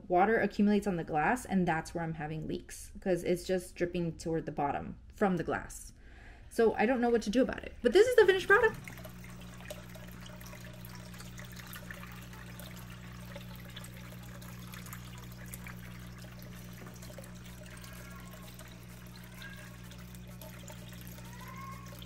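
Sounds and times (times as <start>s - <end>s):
constant low hum: 7.2s - 21.9s
small waterfall trickling: 8.1s - 22.0s.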